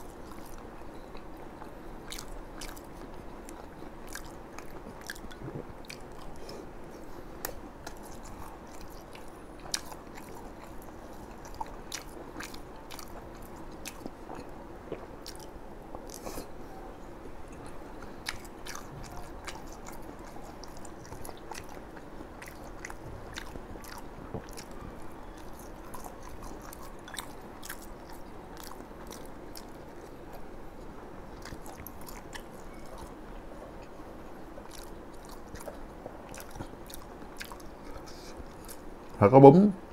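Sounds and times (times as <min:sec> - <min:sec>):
chewing crispy food: 0:00.0 - 0:16.7, 0:17.3 - 0:39.2.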